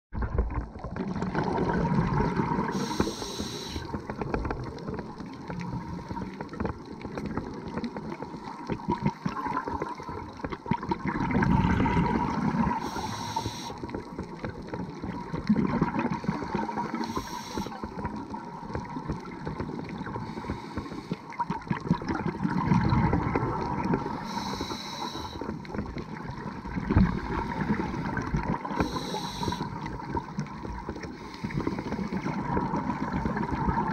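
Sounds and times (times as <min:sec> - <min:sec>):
exhaled bubbles gurgling: 0:00.2 - 0:33.9
faint steady hum: 0:01.7 - 0:10.0, 0:11.1 - 0:33.9
underwater regulator breathing: 0:02.7 - 0:04.1, 0:12.6 - 0:13.9, 0:16.3 - 0:18.0, 0:20.0 - 0:21.5, 0:24.0 - 0:25.6, 0:26.9 - 0:29.9, 0:31.0 - 0:32.6.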